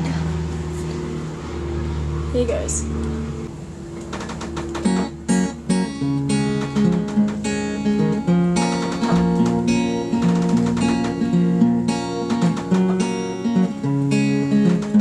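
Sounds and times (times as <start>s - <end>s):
acoustic guitar: 3.8s - 15.0s.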